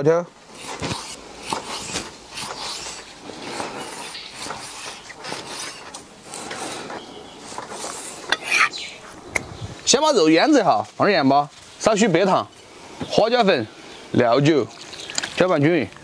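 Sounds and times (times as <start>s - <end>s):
blade scraping through meat: 0.5s - 8.8s.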